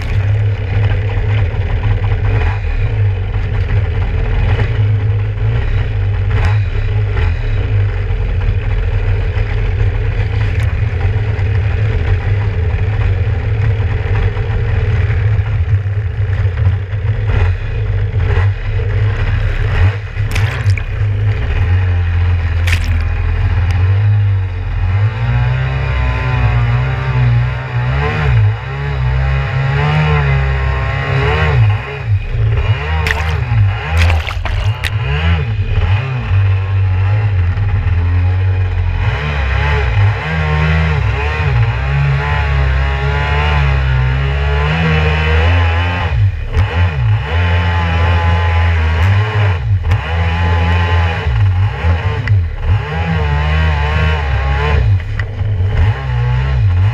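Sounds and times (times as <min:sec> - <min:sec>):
water knocking against hull: 0:00.0 - 0:00.7, 0:20.3 - 0:21.4, 0:33.1 - 0:35.0
jet ski engine idling and revving: 0:00.0 - 0:33.8, 0:35.0 - 0:56.9.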